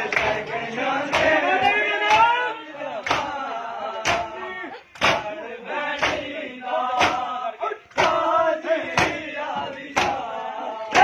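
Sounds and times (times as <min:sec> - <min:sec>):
men chanting in chorus: 0:00.0 - 0:11.0
chest beating slaps: 0:03.0 - 0:03.4, 0:04.0 - 0:04.4, 0:05.0 - 0:05.3, 0:06.0 - 0:06.3, 0:06.9 - 0:10.3.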